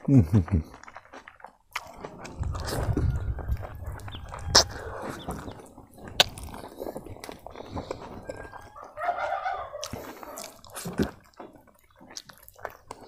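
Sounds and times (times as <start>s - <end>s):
wet chewing and smacking: 0.6s - 13.0s
mouth clicks: 1.7s - 9.0s, 9.6s - 13.0s.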